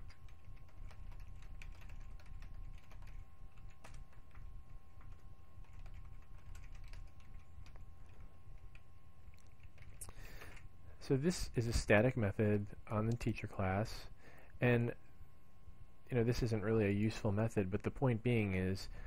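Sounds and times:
keyboard typing clicks: 0:00.0 - 0:10.6
faint steady tones: 0:00.0 - 0:19.0
low hum: 0:00.0 - 0:19.0.

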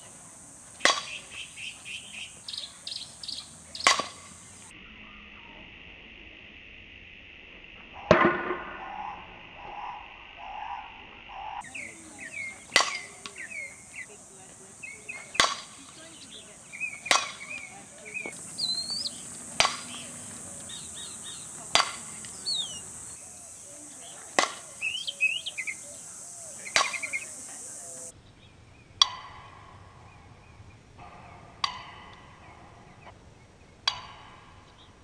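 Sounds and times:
birds chirping: 0:00.0 - 0:04.7, 0:09.7 - 0:35.0
steady high hiss: 0:00.0 - 0:08.0, 0:11.6 - 0:35.0
bat hitting softball: 0:00.7 - 0:01.5, 0:03.2 - 0:04.7, 0:11.7 - 0:23.1, 0:24.3 - 0:25.0, 0:26.5 - 0:28.0, 0:29.0 - 0:29.9, 0:31.6 - 0:32.4, 0:33.8 - 0:34.8.

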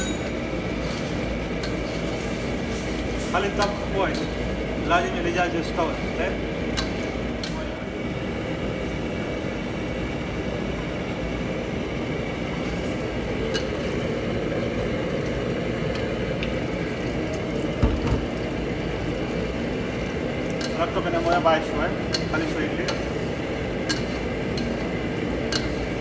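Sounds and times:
gas range running: 0:00.0 - 0:26.0
ladle scraping a steel wok: 0:00.8 - 0:04.4, 0:22.1 - 0:24.9.

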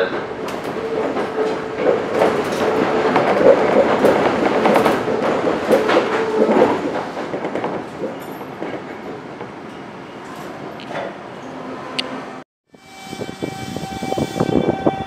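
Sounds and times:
clacks over rail joints: 0:00.0 - 0:11.2
electric train rolling rumble: 0:00.0 - 0:15.0.

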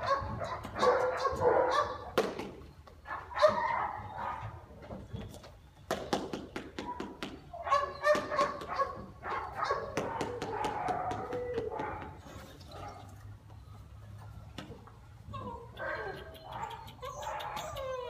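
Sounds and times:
puppy yipping and barking: 0:15.3 - 0:18.0.

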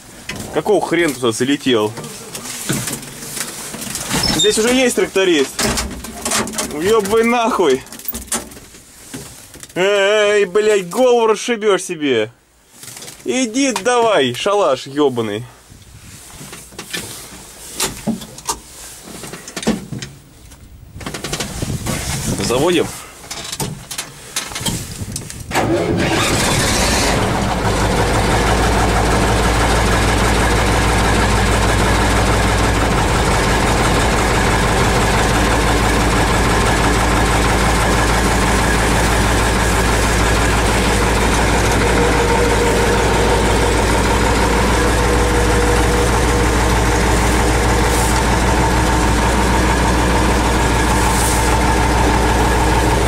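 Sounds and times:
diesel tractor engine idling: 0:00.0 - 0:05.6, 0:25.5 - 0:53.0.

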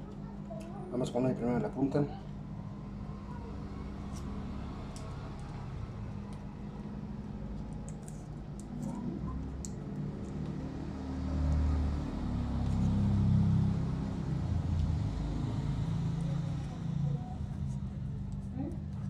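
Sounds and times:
vehicle engine rumble: 0:02.4 - 0:19.0
wire clicking and rustling: 0:07.5 - 0:10.6.

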